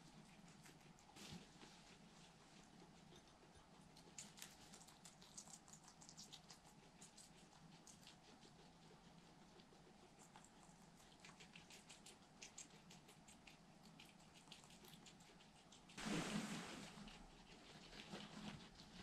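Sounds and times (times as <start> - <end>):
guinea pigs munching: 0.0 - 19.0
rustle: 16.0 - 18.8.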